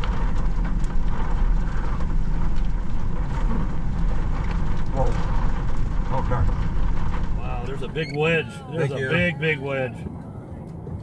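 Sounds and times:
wind buffeting microphone: 0.0 - 8.5.

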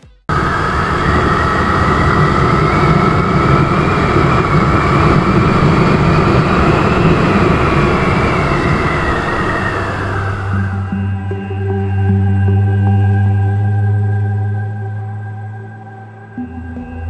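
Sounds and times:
wind and road noise: 0.3 - 11.2.

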